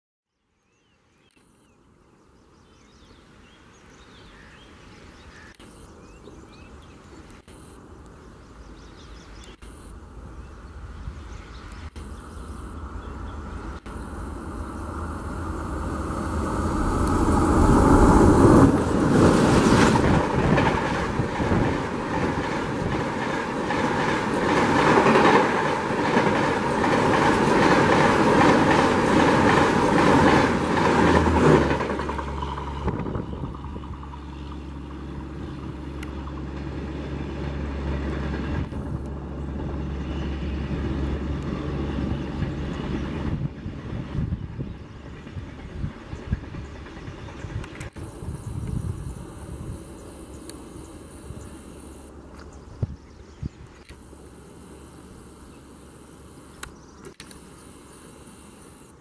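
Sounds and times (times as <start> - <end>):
diesel locomotive engines running: 5.3 - 59.0
train wheels clattering over rails: 14.7 - 39.0.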